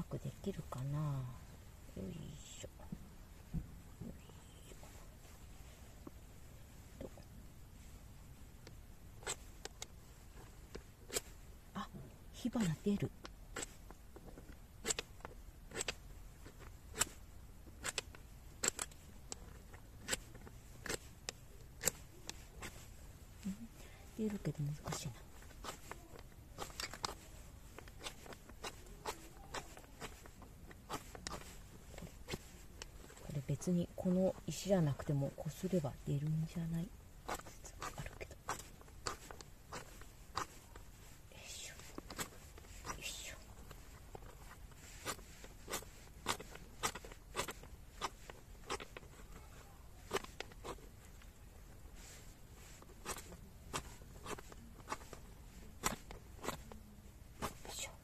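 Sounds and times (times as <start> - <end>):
flint scraping metal rod: 24.5 - 33.3, 41.8 - 56.8.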